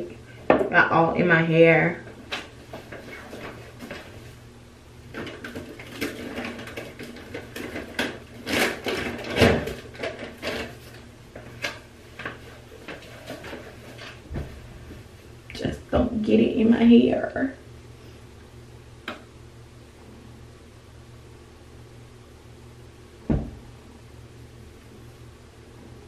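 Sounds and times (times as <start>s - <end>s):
small objects clattering: 5.1s - 14.3s.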